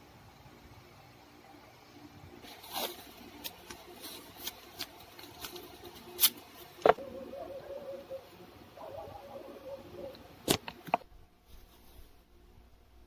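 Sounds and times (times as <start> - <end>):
paper rustling and scratching: 2.4 - 7.0.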